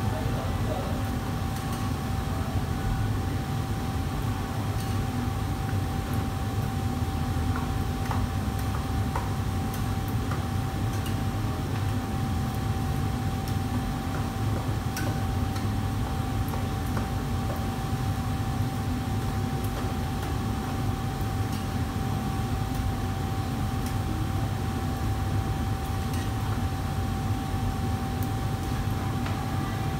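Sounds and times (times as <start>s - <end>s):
low roar of wok burners: 0.0s - 29.9s
metal utensils clicking against woks: 4.8s - 5.1s, 10.9s - 11.3s, 21.4s - 21.8s, 25.8s - 26.5s.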